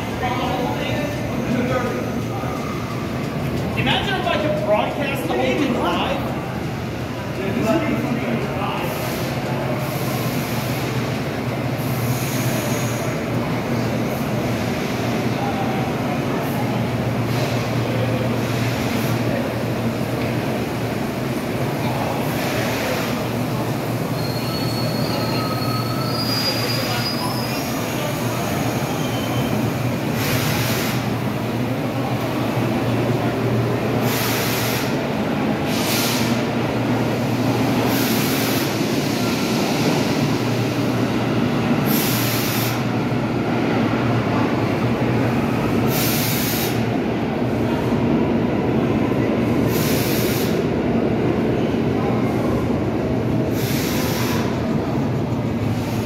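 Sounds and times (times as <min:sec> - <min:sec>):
subway train low hum: 0:00.0 - 0:56.0
short air hisses: 0:30.1 - 0:31.1, 0:34.0 - 0:35.0, 0:35.7 - 0:36.5, 0:37.9 - 0:39.4, 0:41.9 - 0:42.9, 0:45.9 - 0:46.9, 0:49.7 - 0:50.7, 0:53.5 - 0:54.6.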